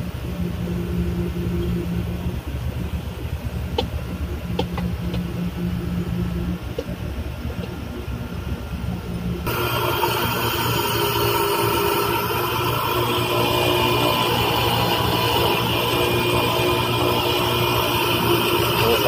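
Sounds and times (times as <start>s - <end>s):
machinery hum: 0.0s - 19.0s
loud hissy steady noise: 8.3s - 19.0s.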